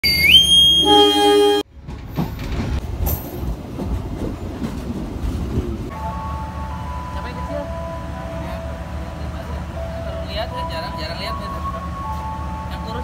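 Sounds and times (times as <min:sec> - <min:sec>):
departure whistle: 0:00.0 - 0:01.6
train horn: 0:00.7 - 0:01.7
train rumbling along track: 0:00.8 - 0:13.0.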